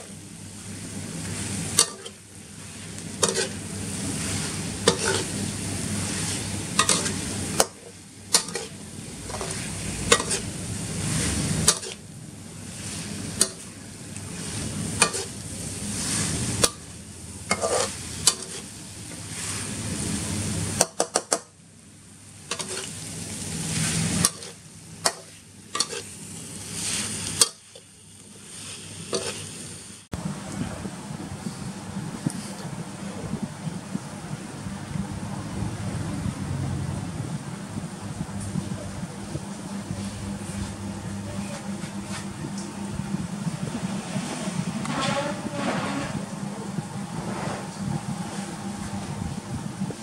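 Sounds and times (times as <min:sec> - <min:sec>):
food sizzling in a wok: 0:00.0 - 0:21.3, 0:22.2 - 0:30.1
spatula scraping a wok: 0:00.9 - 0:12.0, 0:12.6 - 0:20.2, 0:22.4 - 0:29.8, 0:44.2 - 0:46.3, 0:47.2 - 0:47.8.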